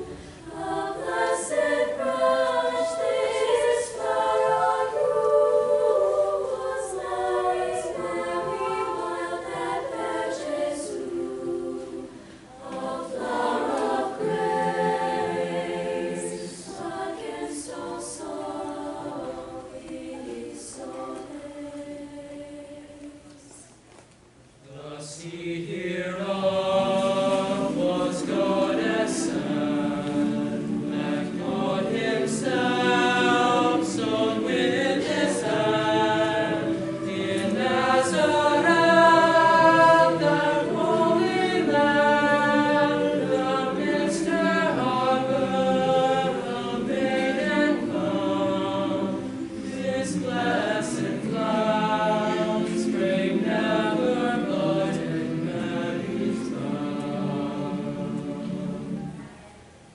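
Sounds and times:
choir singing: 0.0 - 23.5, 24.7 - 59.6.

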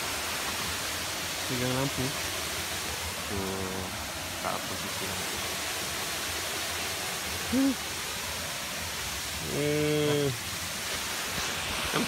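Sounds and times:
waterfall rushing: 0.0 - 12.0
person's voice: 7.5 - 7.8, 9.4 - 10.4.

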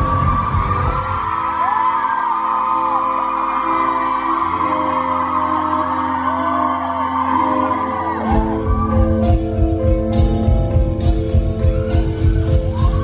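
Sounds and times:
live rock band playing: 8.2 - 13.0.

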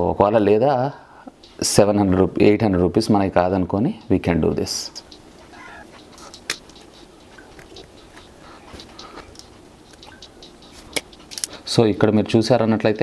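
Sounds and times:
sharp snap: 6.4 - 6.8
pliers cracking metal housing: 11.0 - 11.5.

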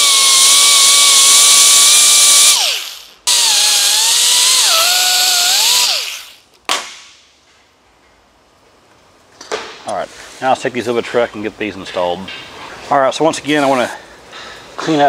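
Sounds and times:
air cut-off tool whining: 0.0 - 6.4.

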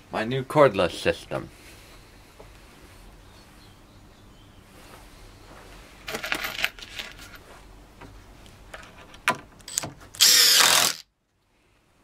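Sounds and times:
impact driver driving screw: 9.7 - 11.0.

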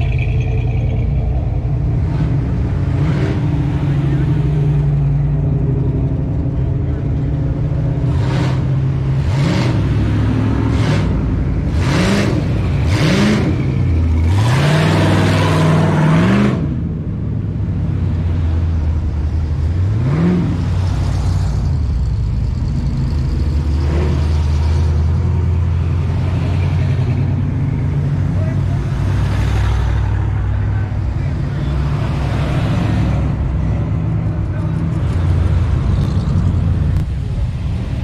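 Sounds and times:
pickup truck engines idling: 0.0 - 11.9, 20.6 - 38.0
engine throttle revs: 0.0 - 16.9.

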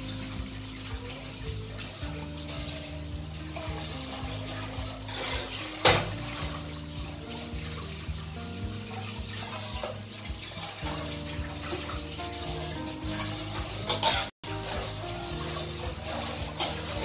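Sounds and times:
background music: 0.0 - 17.0
tap water running into sink: 0.0 - 17.0
steel utensils clanking: 10.6 - 17.0.

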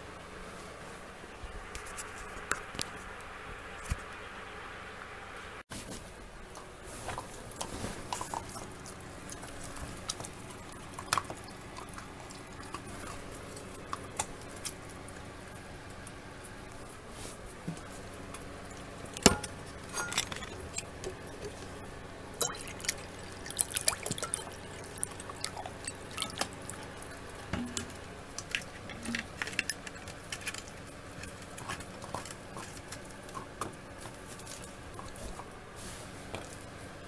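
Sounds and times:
dog lapping water: 7.2 - 15.1, 22.4 - 33.5.

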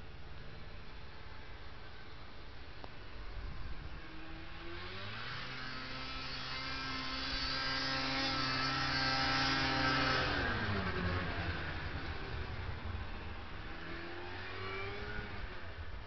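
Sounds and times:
snowmobile engine passing: 3.6 - 16.0.

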